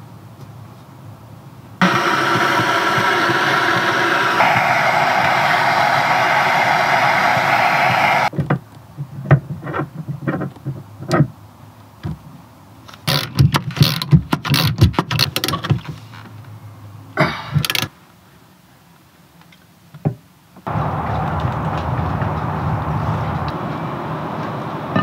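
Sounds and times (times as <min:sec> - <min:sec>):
gas blowtorch hissing: 0:01.8 - 0:08.3.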